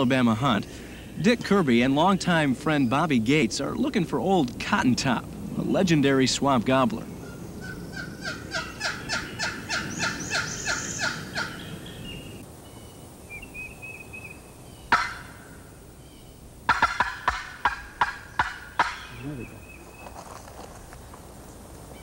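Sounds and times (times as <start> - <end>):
turkey call notes: 7.1 - 12.4, 13.3 - 20.2
faint bird chirps: 18.3 - 20.2.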